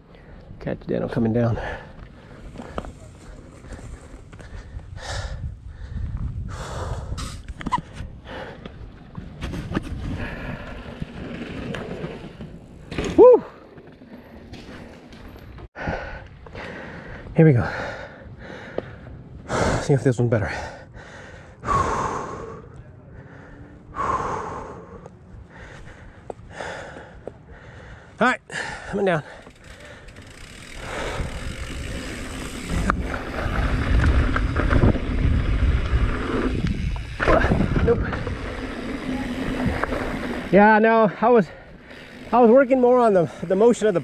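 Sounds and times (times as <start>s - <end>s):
wind rumbling on microphone: 1.9s - 12.9s, 30.8s - 40.6s
person breathing hard: 3.6s - 7.4s, 15.8s - 19.9s, 20.5s - 31.8s.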